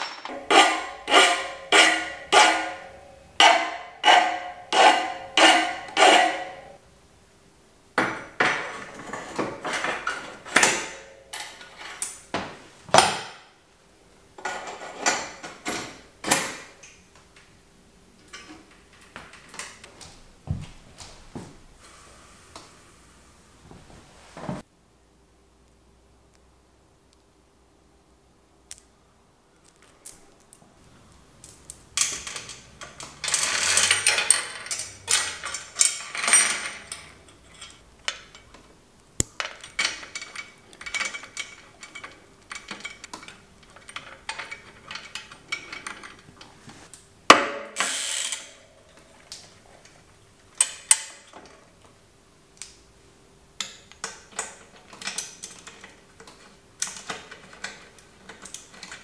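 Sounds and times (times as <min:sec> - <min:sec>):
bicycle chain rattling: 0:32.0 - 0:38.4.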